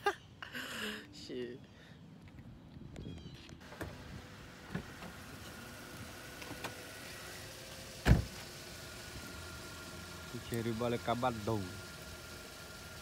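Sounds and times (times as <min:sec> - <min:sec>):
car engine running: 0:03.6 - 0:13.0.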